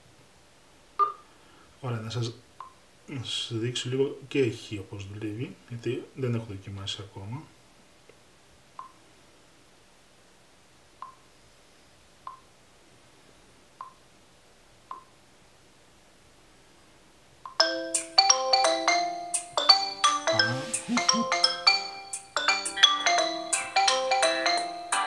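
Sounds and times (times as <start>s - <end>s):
phone ringtone melody: 17.6s - 25.0s.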